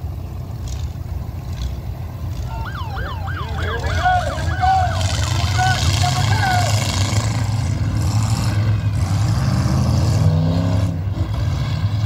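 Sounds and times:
vehicle engines rumbling: 0.0 - 12.0
siren yelping: 2.4 - 7.0.

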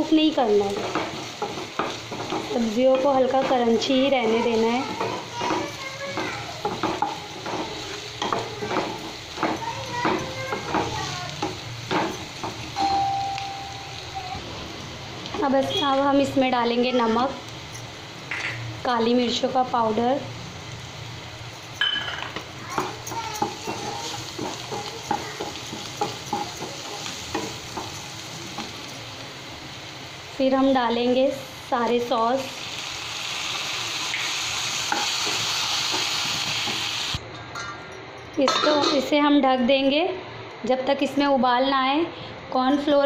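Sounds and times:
vegetables sizzling in oil: 0.0 - 37.2
spatula scraping a wok: 0.7 - 12.4, 22.6 - 28.9.

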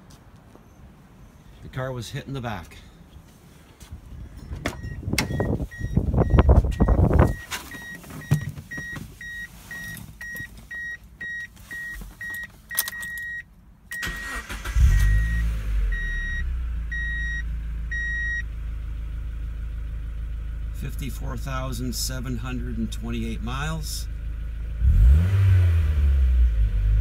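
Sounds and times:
car engine idling: 4.1 - 25.2
dashboard warning chime beeping: 4.5 - 18.5
rustling and knocks: 6.5 - 10.8
car starter cranking: 12.1 - 16.0.

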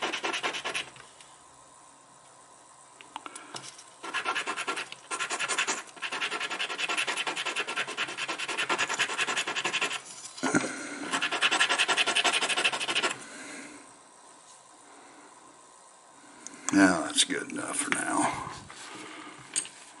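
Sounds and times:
sandpaper scraping metal: 0.0 - 0.9, 4.1 - 10.0, 11.1 - 13.2.

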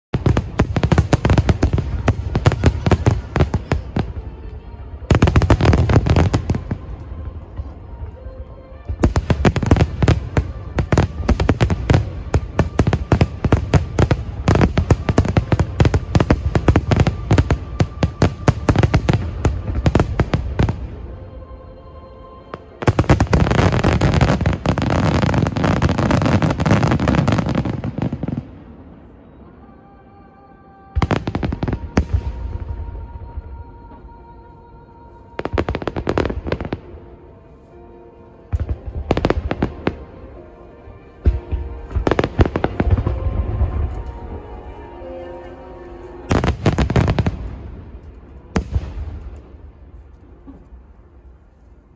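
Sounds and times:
fireworks bursting and crackling: 0.1 - 21.1, 22.7 - 29.2, 35.4 - 37.0, 38.5 - 50.7.

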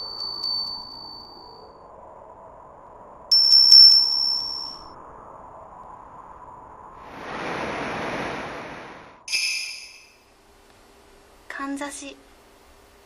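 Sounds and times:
high bell chime: 0.0 - 1.8, 3.3 - 4.9, 9.3 - 10.2
rushing whoosh: 6.9 - 9.3.

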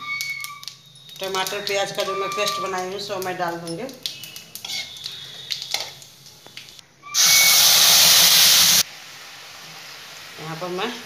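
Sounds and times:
utensils clinking: 0.0 - 6.0
paste sizzling in hot oil: 0.5 - 11.0.

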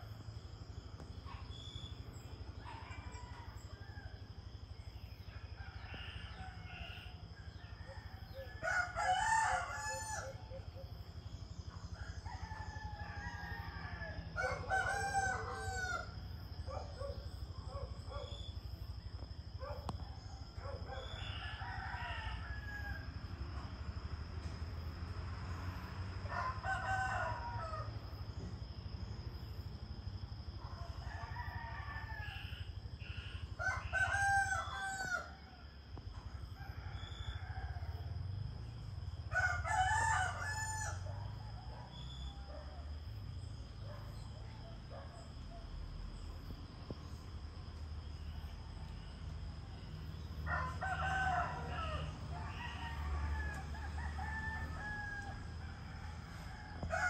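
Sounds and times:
roosters crowing: 5.6 - 10.6, 11.9 - 17.1, 20.3 - 23.8, 26.2 - 28.2, 30.7 - 35.7, 39.0 - 42.6, 49.0 - 57.0.

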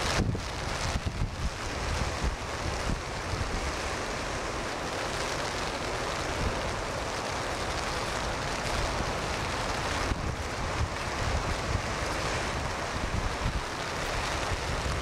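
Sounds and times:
wind buffeting microphone: 0.0 - 3.7, 8.4 - 15.0
heavy surf breaking: 0.0 - 15.0.

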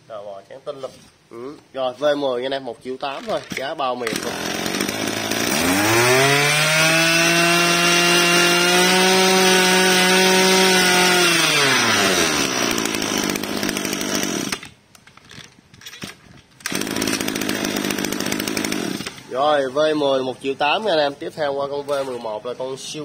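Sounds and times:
brush cutter engine revving: 3.2 - 14.8, 16.1 - 19.4.

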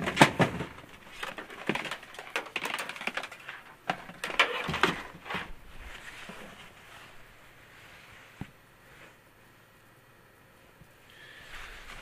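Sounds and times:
objects knocking and clattering: 0.0 - 5.6.

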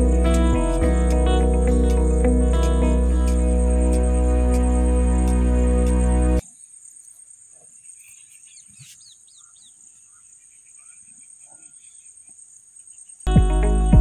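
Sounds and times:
high-pitched whine: 0.0 - 6.4
bird chirps: 7.6 - 13.2.

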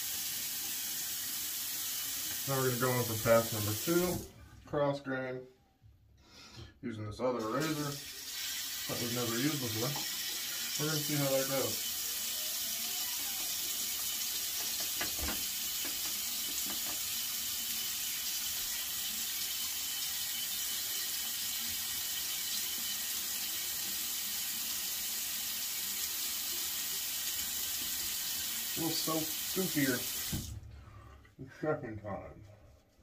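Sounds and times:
tap running into a sink: 9.6 - 10.5, 13.8 - 17.5, 30.0 - 30.6.

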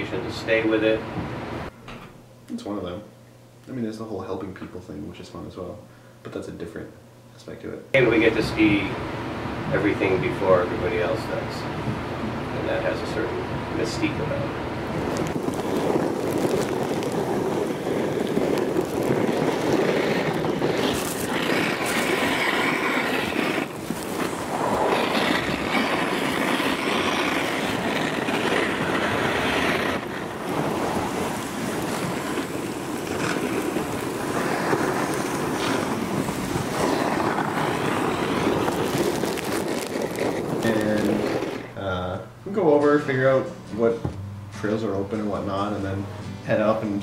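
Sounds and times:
wind buffeting microphone: 8.3 - 41.7.

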